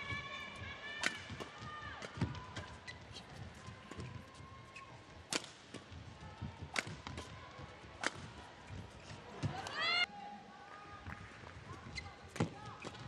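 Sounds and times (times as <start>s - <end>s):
rackets hitting shuttlecock: 1.0s - 2.4s, 6.6s - 7.3s, 8.0s - 8.3s
shoes squeaking on court floor: 2.0s - 5.0s, 8.6s - 10.0s, 11.7s - 13.0s.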